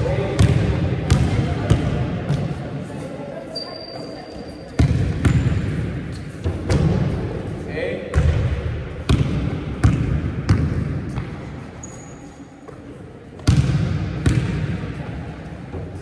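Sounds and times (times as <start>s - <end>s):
high squeak: 3.5s - 4.8s
basketball bouncing on wooden floor: 9.1s - 11.3s.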